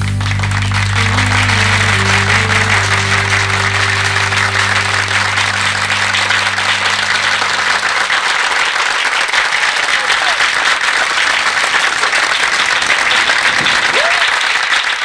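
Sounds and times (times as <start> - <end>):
sustained low music notes: 0.0 - 9.2
audience applauding: 0.0 - 15.0.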